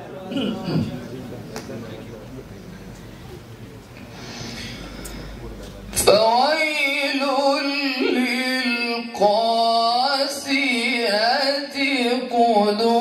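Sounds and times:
melodic religious recitation: 4.2s - 13.0s.

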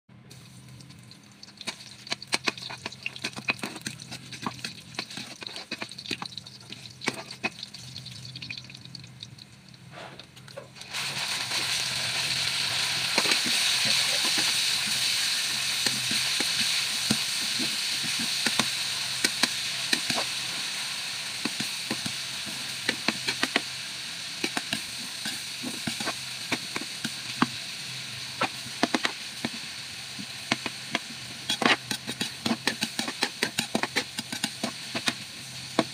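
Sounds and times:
meat sizzling in hot oil: 0.3s - 9.8s, 10.8s - 35.9s
metal spatula scraping a wok: 1.6s - 6.3s, 7.0s - 7.5s, 30.5s - 35.2s.

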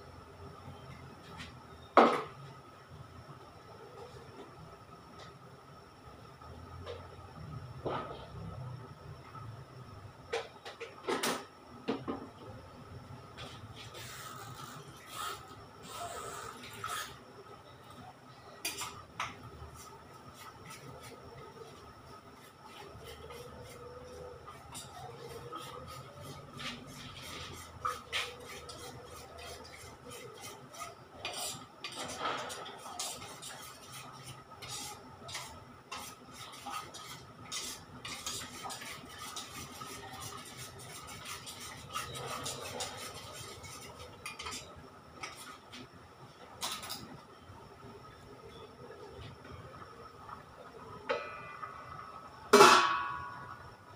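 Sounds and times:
utensil scraping steel bowl: 23.0s - 45.5s.

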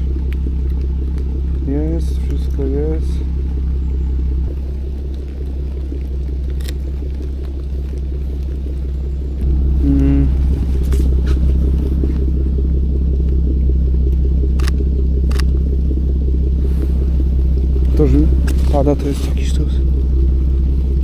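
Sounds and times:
car engine idling: 0.0s - 21.0s
sharp clicks: 5.9s - 8.6s, 14.1s - 15.6s
brief tone: 8.9s - 12.1s.

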